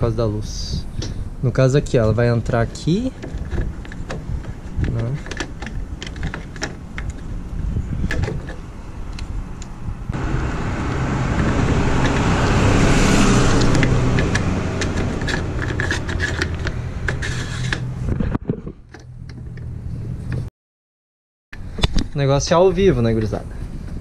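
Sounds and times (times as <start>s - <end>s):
vehicle engine running: 10.1s - 18.2s.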